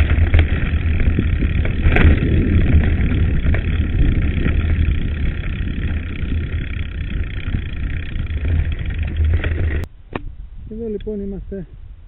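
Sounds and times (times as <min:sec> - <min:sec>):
bike tyres on gravel and rattle: 0:00.0 - 0:09.9
wind rumble on microphone: 0:00.0 - 0:12.0.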